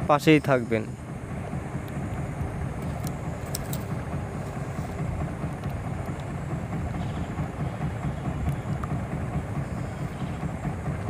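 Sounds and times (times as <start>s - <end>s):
low outdoor rumble: 0.0s - 11.0s
faint clicks: 8.4s - 9.0s.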